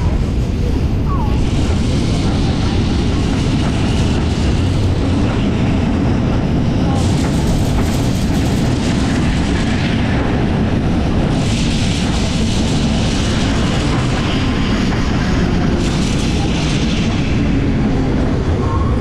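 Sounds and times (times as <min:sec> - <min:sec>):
tram running on track: 0:00.0 - 0:19.0
wind rumble: 0:00.0 - 0:19.0.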